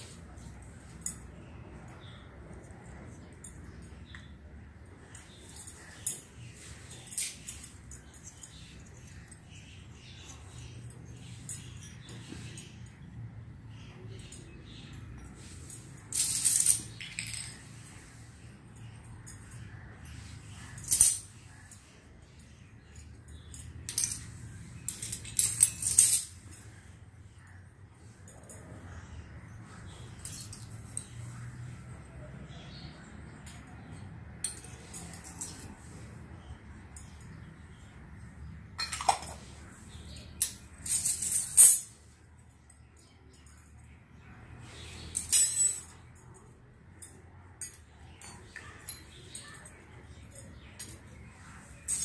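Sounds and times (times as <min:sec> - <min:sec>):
toy metal pots clinking: 0:14.2 - 0:17.8, 0:20.7 - 0:21.7, 0:23.0 - 0:26.6, 0:38.7 - 0:41.9
small metal dishes clinking: 0:38.7 - 0:42.0.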